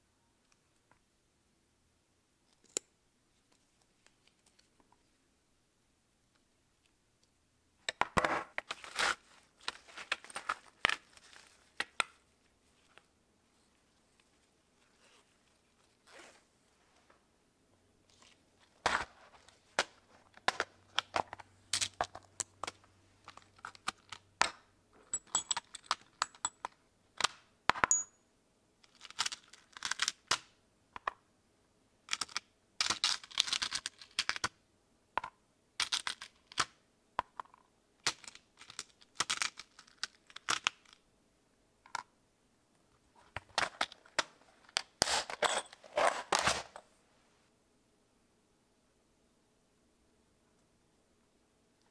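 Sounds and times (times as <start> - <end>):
snap fasteners clicking in plastic box: 32.1 - 34.5.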